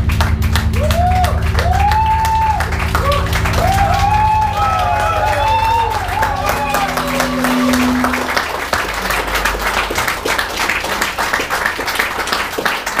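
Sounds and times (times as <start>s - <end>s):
audience clapping: 0.0s - 13.0s
held low note: 3.5s - 10.8s.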